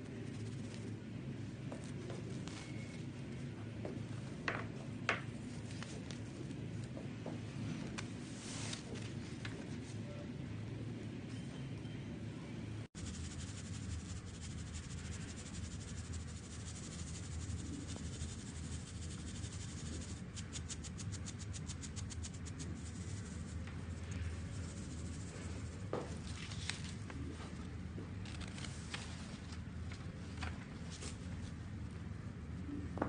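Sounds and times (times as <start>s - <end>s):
steady low hum: 0.0s - 33.0s
paper rustling and scraping: 8.0s - 9.9s, 21.9s - 27.6s, 28.2s - 31.6s
powder shaken through metal sieve: 13.0s - 27.0s.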